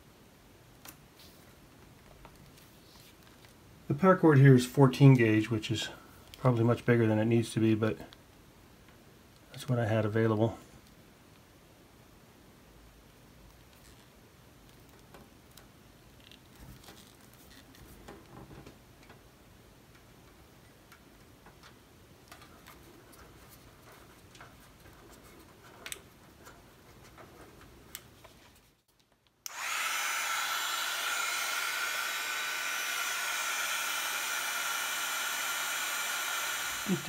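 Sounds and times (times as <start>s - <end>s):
small clicks and handling: 20.9s - 29.6s
heat gun blowing with whine: 29.4s - 37.0s.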